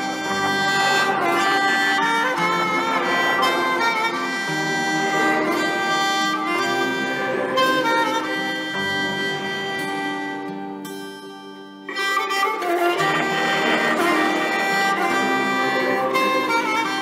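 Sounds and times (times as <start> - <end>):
bowed-string melody: 0.0 - 17.0
steady musical accompaniment: 0.0 - 17.0.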